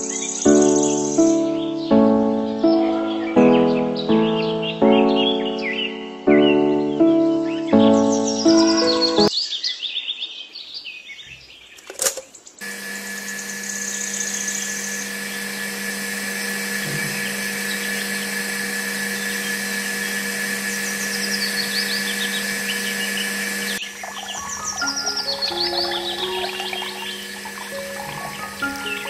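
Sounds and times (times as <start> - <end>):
toy motor whining: 12.6 - 29.0.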